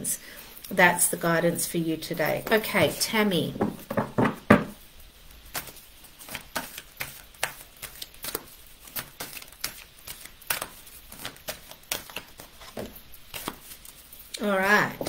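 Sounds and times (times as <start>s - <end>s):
cards being shuffled: 5.5s - 15.0s.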